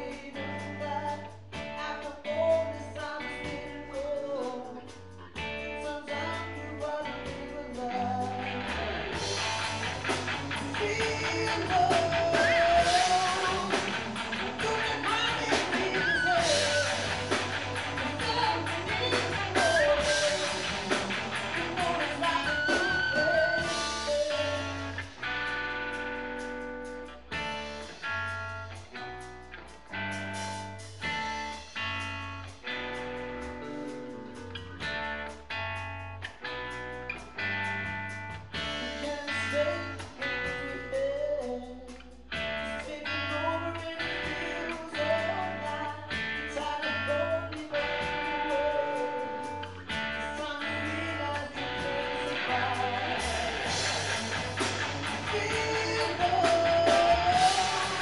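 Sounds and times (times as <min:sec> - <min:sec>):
person singing: 0:00.0 - 0:25.2, 0:38.6 - 0:58.0
bass guitar: 0:00.0 - 0:58.0
distorted electric guitar: 0:00.0 - 0:58.0
drum kit: 0:00.0 - 0:58.0
lead guitar bending held notes: 0:04.8 - 0:40.7, 0:42.4 - 0:58.0.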